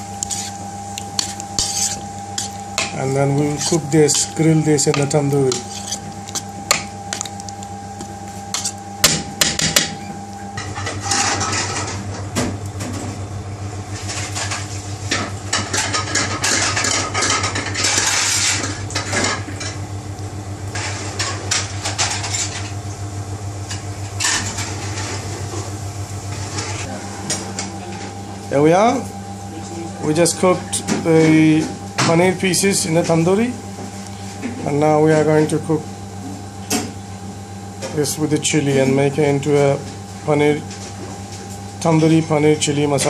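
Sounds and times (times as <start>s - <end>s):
low hum with hiss: 0.0s - 43.0s
spoon scraping a bowl: 0.1s - 7.5s, 8.5s - 8.8s.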